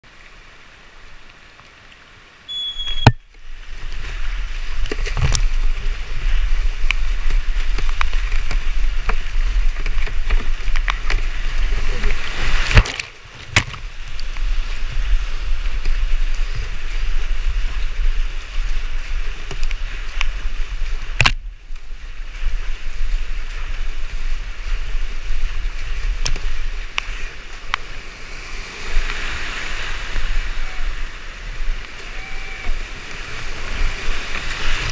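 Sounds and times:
whitewater rushing and splashing: 0.0s - 34.9s
paddle strokes: 1.4s - 34.9s
short high beep: 2.5s - 3.3s.

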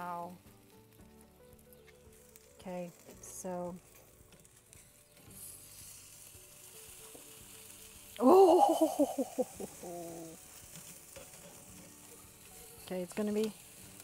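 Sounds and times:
chicken sizzling on charcoal grill: 0.0s - 14.0s
metal tongs moving food: 9.5s - 13.9s.

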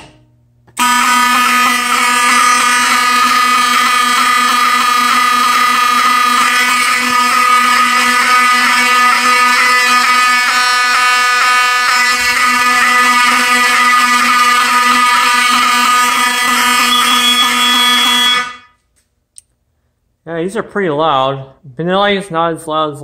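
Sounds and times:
fire alarm horn buzzing: 0.7s - 18.9s.

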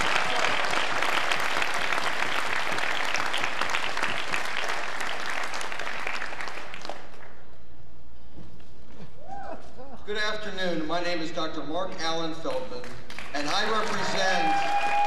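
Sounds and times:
audience applauding: 0.0s - 7.4s, 12.8s - 15.0s.

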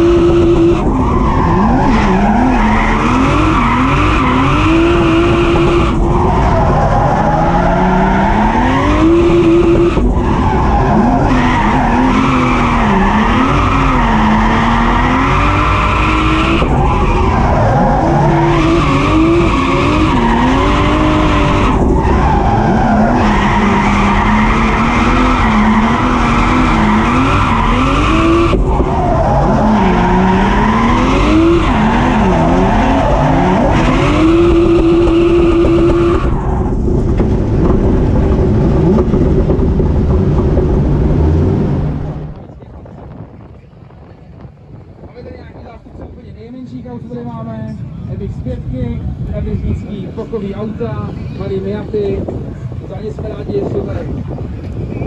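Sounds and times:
car engine revving: 0.0s - 42.6s
tyres skidding and squealing: 0.0s - 46.2s.

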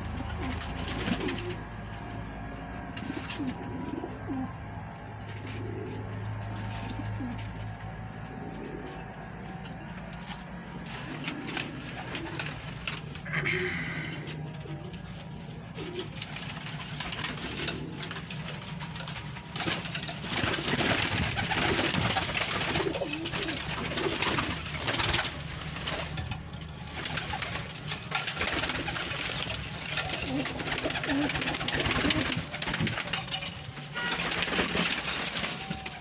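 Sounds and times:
pigeons cooing: 0.0s - 36.0s.

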